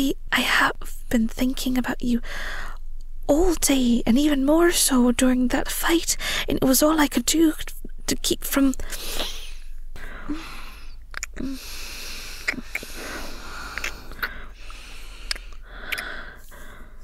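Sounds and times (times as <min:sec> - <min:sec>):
sniffs: 0:08.8 - 0:09.7
breathy exhales: 0:08.8 - 0:17.0
wet kissing lip smacks: 0:11.1 - 0:11.5, 0:12.4 - 0:14.5, 0:15.2 - 0:16.2.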